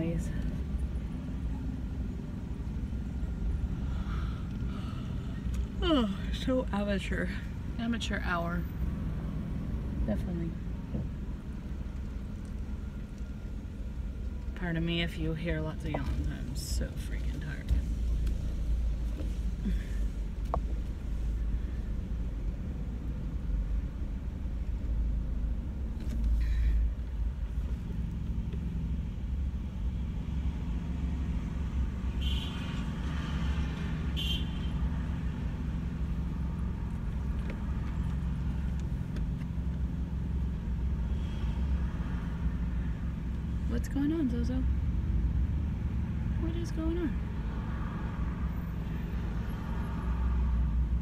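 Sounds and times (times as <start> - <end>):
car interior rumble: 0.0 - 51.0.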